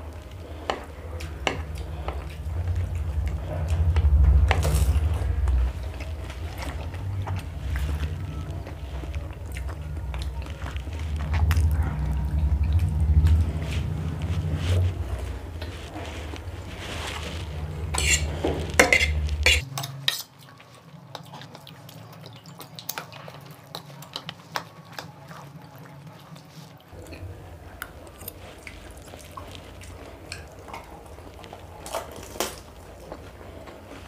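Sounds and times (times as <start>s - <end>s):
forks clinking against plates: 18.0s - 20.4s.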